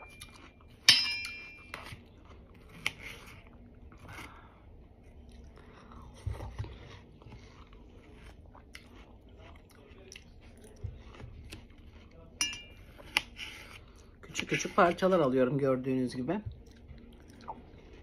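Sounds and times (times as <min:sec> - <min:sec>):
chewing juicy watermelon: 0:00.0 - 0:00.9, 0:01.5 - 0:15.1, 0:16.5 - 0:18.0
ringing metal clink: 0:00.9 - 0:01.7.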